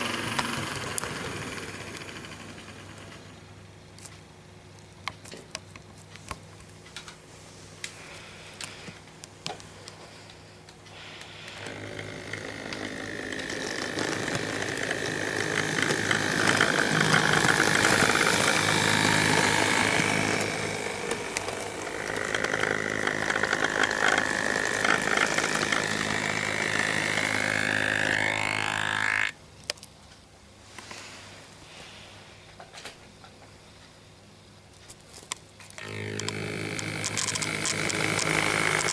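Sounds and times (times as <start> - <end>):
electric motor whine: 0.0 - 2.5, 11.0 - 29.4, 35.8 - 38.9
model train wheels rattling on rails: 0.0 - 3.3, 11.0 - 29.3, 35.8 - 38.9
scattered clicks: 35.3 - 38.9.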